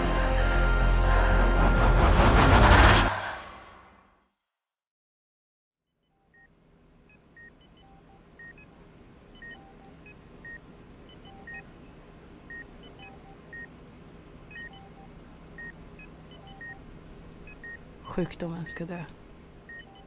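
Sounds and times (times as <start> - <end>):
softer higher and lower beeps: 0.1 - 3.0
low steady hum: 6.2 - 20.0
patient monitor beeping: 7.1 - 8.7, 9.4 - 11.7, 12.5 - 13.7, 14.5 - 20.0.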